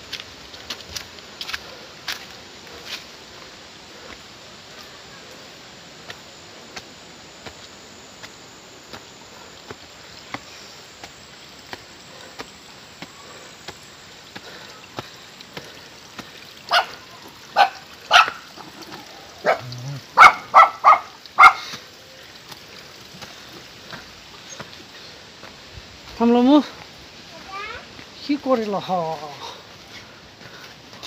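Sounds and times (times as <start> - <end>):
dog barking: 16.7 - 18.5, 19.4 - 21.8.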